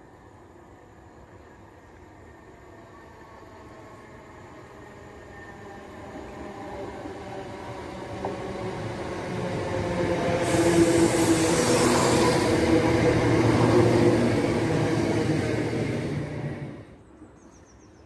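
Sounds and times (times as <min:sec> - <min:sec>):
diesel train engine drone: 0:00.0 - 0:17.1
train wheel and air rush: 0:03.2 - 0:17.0.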